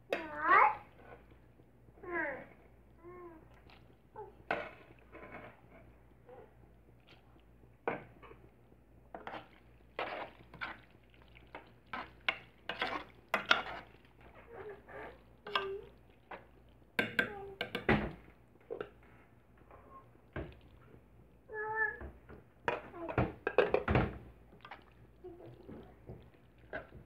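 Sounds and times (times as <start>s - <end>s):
utensil scraping a pan: 9.1s - 15.7s.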